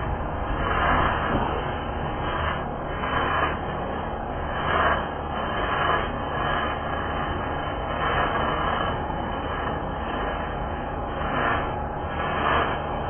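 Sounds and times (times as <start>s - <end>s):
welding arc hissing: 0.0s - 13.0s.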